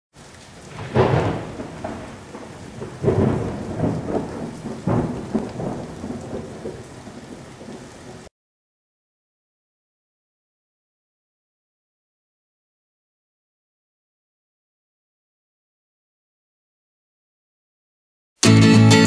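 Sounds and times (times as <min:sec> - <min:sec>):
steady rain: 0:00.1 - 0:08.3
thunder cracking and rumbling: 0:00.6 - 0:08.3.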